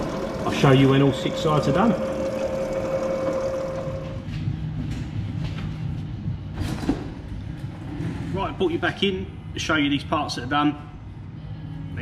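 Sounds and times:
milling machine whine: 0.0s - 4.4s
machine low running rumble: 0.0s - 6.6s.

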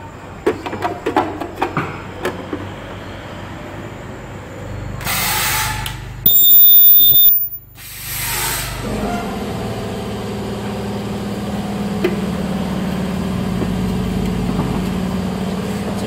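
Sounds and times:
high-pitched ultrasonic weld screech: 6.3s - 7.6s.

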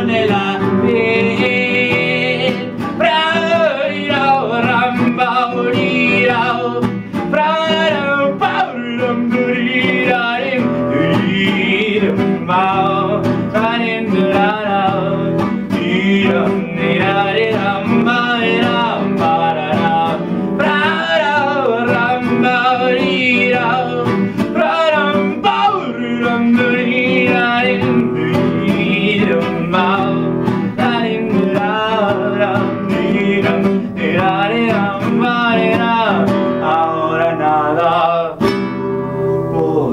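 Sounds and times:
acoustic guitar: 0.0s - 39.9s
person singing: 0.0s - 39.9s.

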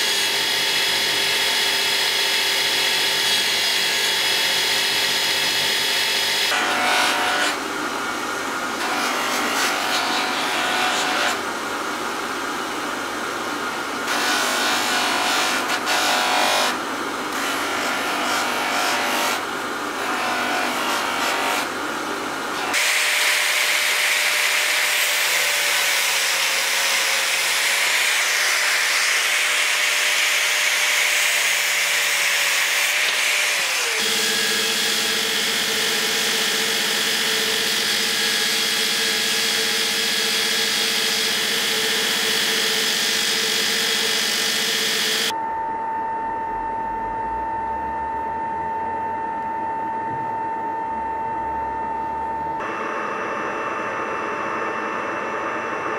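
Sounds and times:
machine hum with high whine: 0.0s - 55.9s
belt grinder grinding steel: 22.6s - 45.3s.

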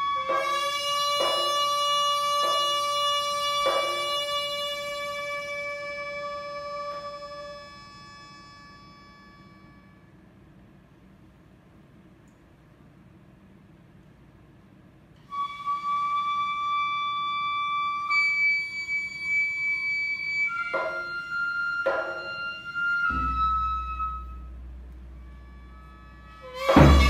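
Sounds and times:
wind ensemble playing: 0.0s - 7.7s, 20.5s - 27.0s
bamboo flute long notes: 0.0s - 10.2s, 15.2s - 27.0s
low hum: 23.1s - 27.0s.

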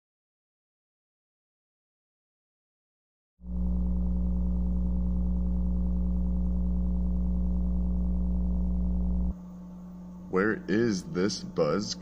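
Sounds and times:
low mains buzz: 3.4s - 12.0s.

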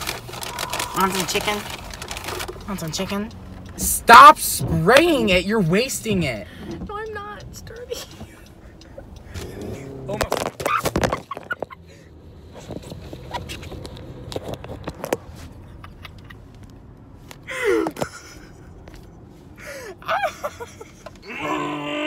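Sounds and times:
car cabin rumble: 0.0s - 19.2s
person crying out: 0.4s - 1.1s, 21.2s - 22.0s.

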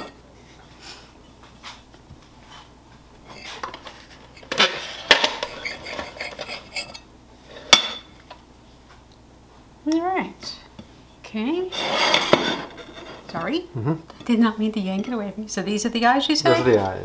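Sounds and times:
knife scraping a plate: 3.3s - 8.1s, 11.7s - 13.5s.

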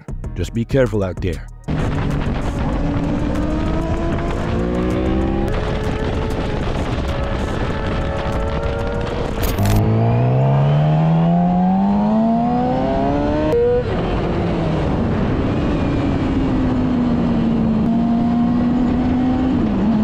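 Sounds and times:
motorcycle engine pulling hard: 1.7s - 13.3s
wind and road noise: 1.7s - 20.0s.

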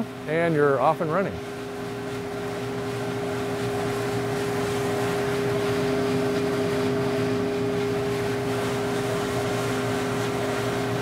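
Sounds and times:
coffee roaster blower drone: 0.0s - 11.0s.

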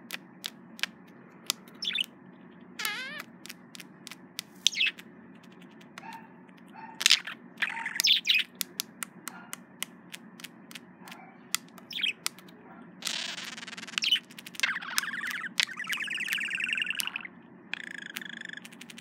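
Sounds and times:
budgerigar clicks: 0.0s - 2.2s, 2.8s - 19.0s
buzzy bird warble: 0.0s - 19.0s
budgerigar chattering: 1.5s - 2.2s, 2.8s - 3.9s, 4.6s - 8.7s, 11.0s - 19.0s.

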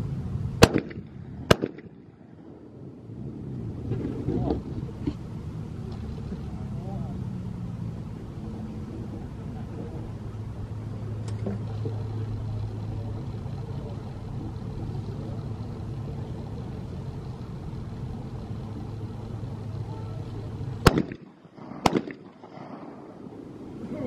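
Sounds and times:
steady low hum: 0.0s - 24.0s
shotgun shots: 0.6s - 1.9s, 20.8s - 22.4s.

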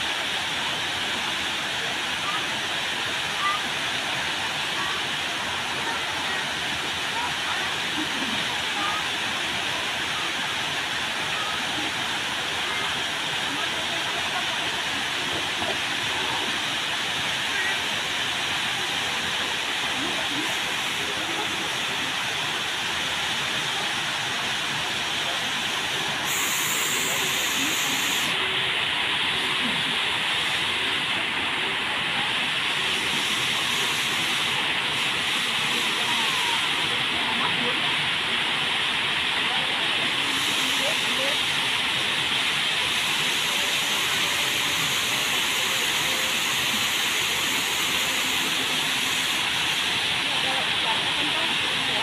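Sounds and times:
bright water hiss: 0.0s - 52.0s
waterfall rushing: 0.0s - 52.0s.

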